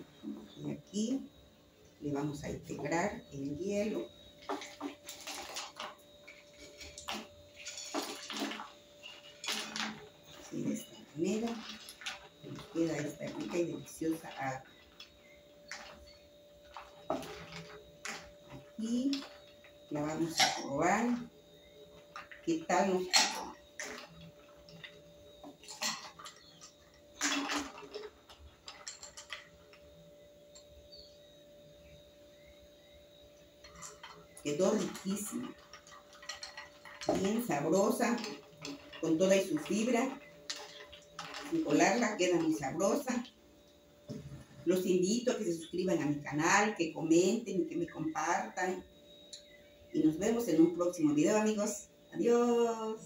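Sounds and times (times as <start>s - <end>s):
ice and liquid clatter: 4.4s - 18.3s, 22.1s - 29.7s, 33.6s - 43.2s.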